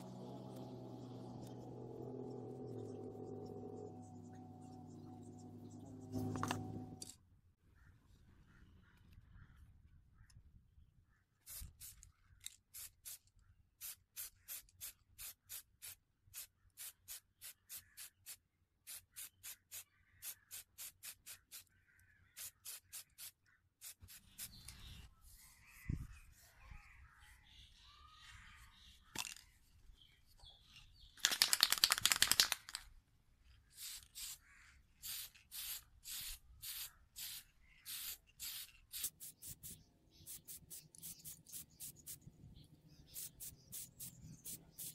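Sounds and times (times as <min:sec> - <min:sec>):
spray can spraying: 0:11.5 - 0:12.0, 0:12.8 - 0:13.2, 0:13.8 - 0:21.6, 0:22.4 - 0:24.7, 0:33.8 - 0:34.4, 0:35.0 - 0:42.2, 0:43.1 - 0:44.9.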